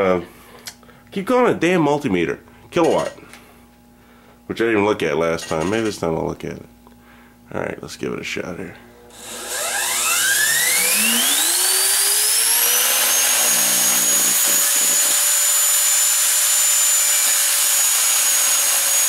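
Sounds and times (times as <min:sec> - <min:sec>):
vacuum motor whining: 0:09.0 - 0:19.0
motor brushes arcing: 0:09.1 - 0:19.0.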